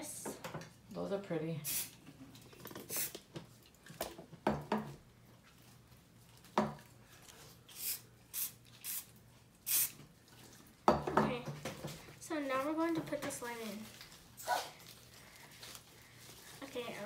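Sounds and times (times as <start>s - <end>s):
spray paint can hissing: 1.7s - 1.9s, 2.9s - 3.2s, 7.7s - 10.0s.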